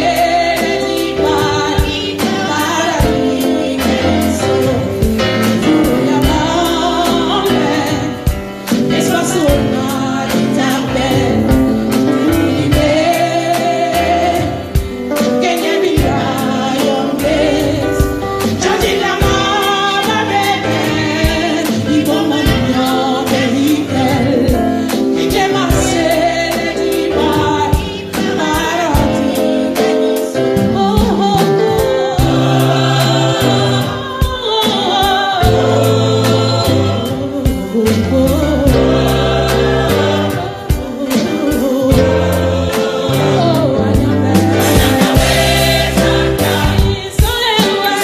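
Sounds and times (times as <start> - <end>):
gospel choir singing: 0.0 - 48.0
steady beat: 35.4 - 48.0.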